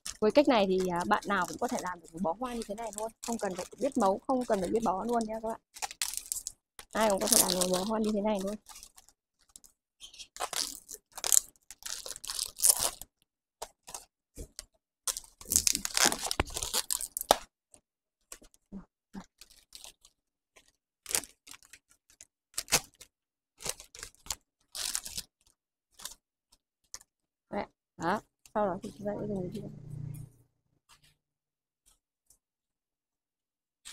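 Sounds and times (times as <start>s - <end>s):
wrapping paper rustling and crinkling: 0.0s - 17.5s, 19.2s - 26.2s.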